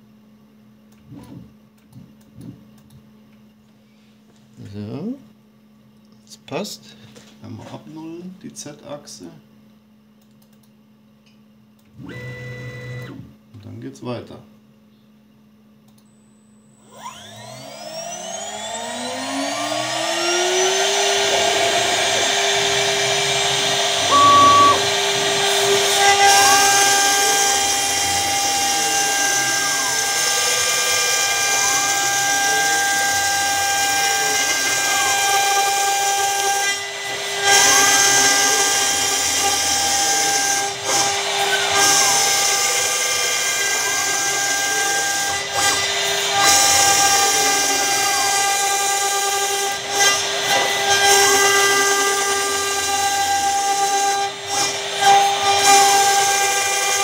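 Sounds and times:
router spindle whine: 12.0 - 13.2, 16.7 - 57.0
whine rising and falling in pitch: 16.8 - 31.0
end mill cutting plastic sheet: 17.0 - 57.0.

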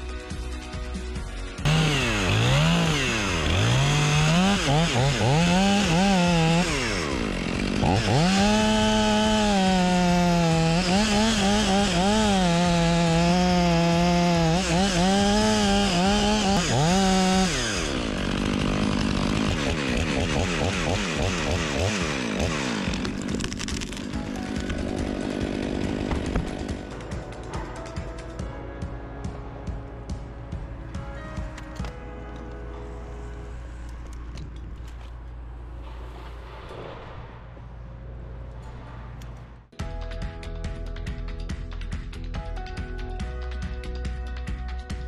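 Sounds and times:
chainsaw cutting wood: 1.5 - 28.0.

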